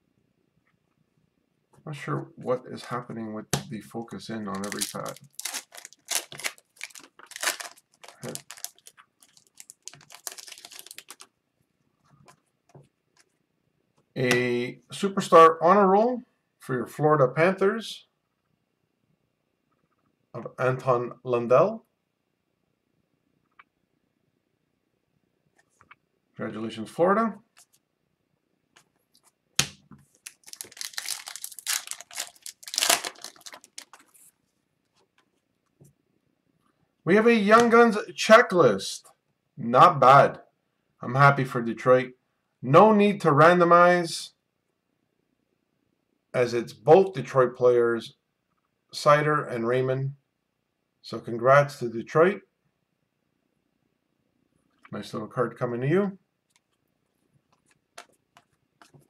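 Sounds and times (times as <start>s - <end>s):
cards clicking and rustling: 4.5s - 11.3s, 29.6s - 34.3s, 57.5s - 59.0s
foil wrapper crinkling and tearing: 4.5s - 11.3s, 30.2s - 34.3s.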